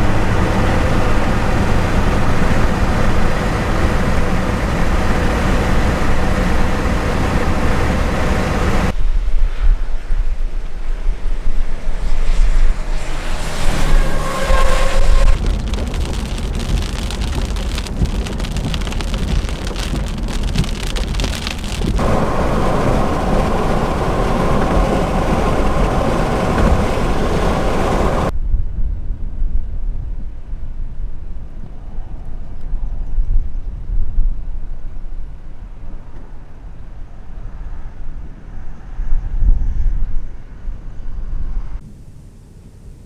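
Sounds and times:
wind buffeting microphone: 0.0 - 36.0
heavy rain hissing: 13.6 - 28.3.

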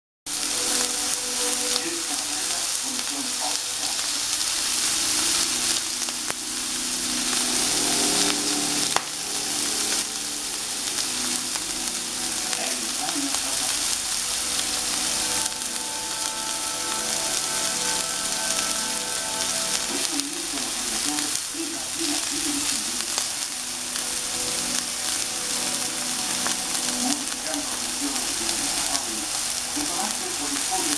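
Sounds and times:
steaks sizzling on a griddle: 0.3 - 30.9.

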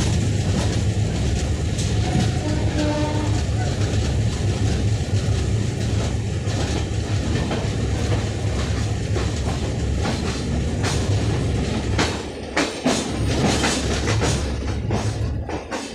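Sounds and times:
passing train coaches rushing: 0.0 - 15.9
train wheels rumbling on rails: 0.0 - 15.9
wheels clacking over rail joints: 0.0 - 15.9.

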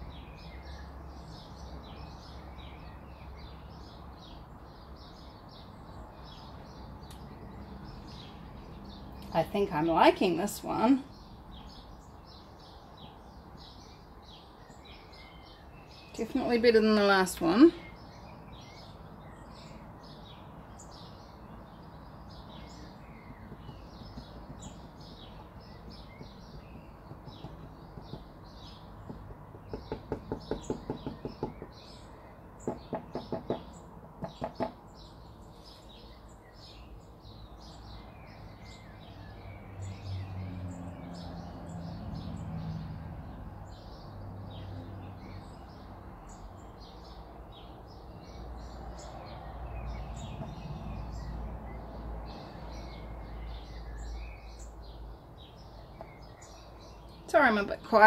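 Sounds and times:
small birds chirping: 0.0 - 58.0.

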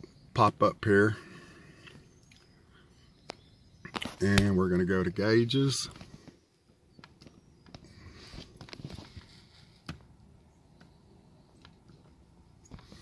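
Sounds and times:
handling noises: 5.8 - 13.0.

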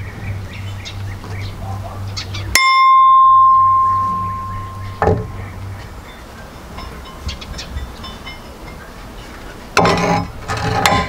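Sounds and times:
background hum: 0.0 - 11.0
bright bell ding: 2.6 - 5.1.

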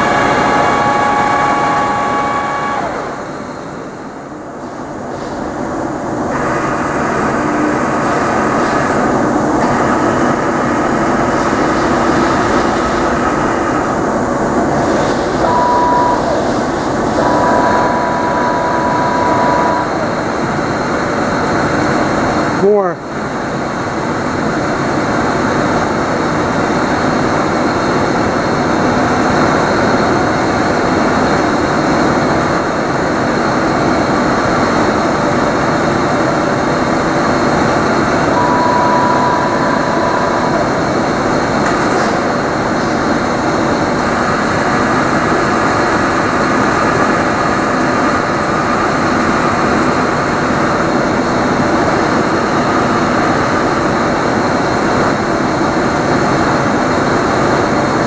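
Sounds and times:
short high whine: 0.0 - 5.4, 6.3 - 21.2, 37.2 - 42.9
lathe running: 0.0 - 22.2, 30.9 - 56.6.

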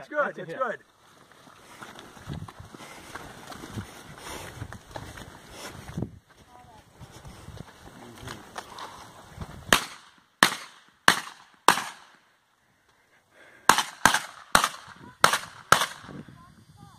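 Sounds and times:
gunshots: 9.7 - 12.2, 13.7 - 16.1.

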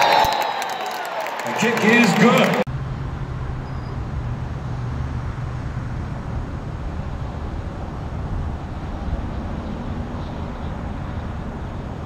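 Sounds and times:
rushing wind: 2.8 - 12.0.

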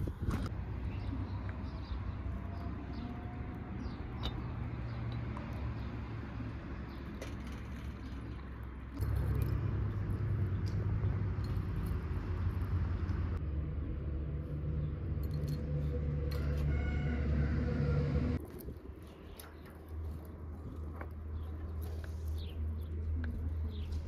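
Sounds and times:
low motor hum: 8.9 - 18.4.

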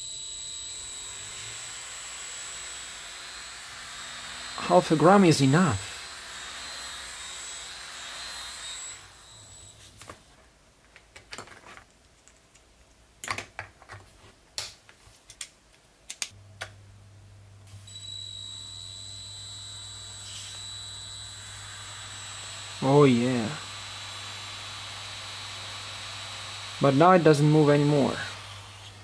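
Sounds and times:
small motor whirring: 0.0 - 9.7, 17.9 - 29.0.

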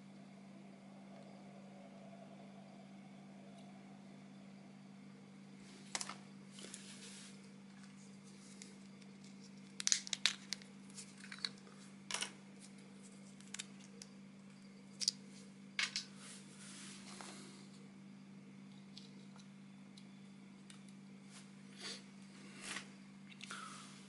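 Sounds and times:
low hum: 0.0 - 24.0.

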